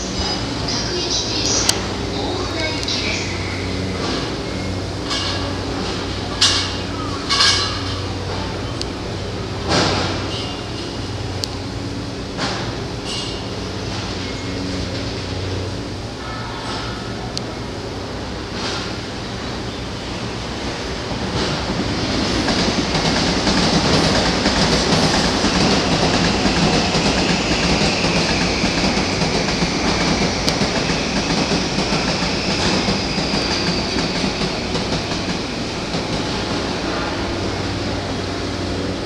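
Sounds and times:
electric train passing: 0.0s - 39.0s.

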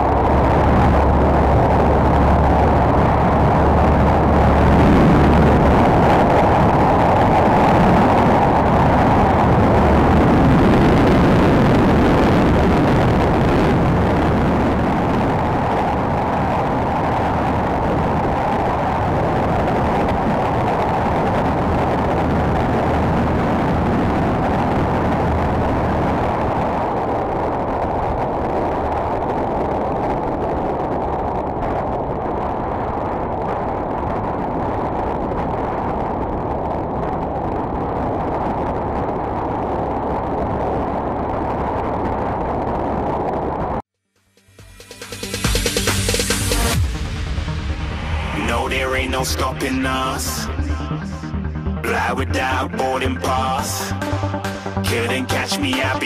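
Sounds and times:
motorcycle engine at high speed: 0.0s - 10.7s
wind rush over microphone: 0.0s - 43.9s, 45.3s - 56.0s.

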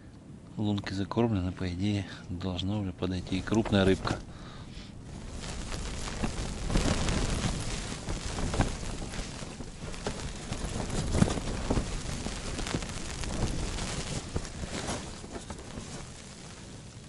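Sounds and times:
wind gusts: 3.1s - 17.0s
tent fabric flapping: 5.0s - 17.0s.

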